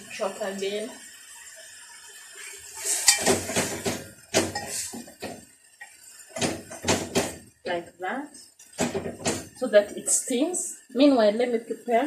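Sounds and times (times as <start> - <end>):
metal pots and utensils clinking: 2.8 - 7.4.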